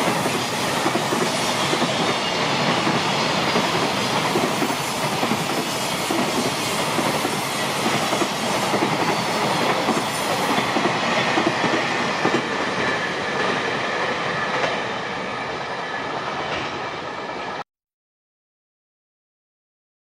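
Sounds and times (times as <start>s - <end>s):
train wheels rumbling on rails: 0.0s - 17.6s.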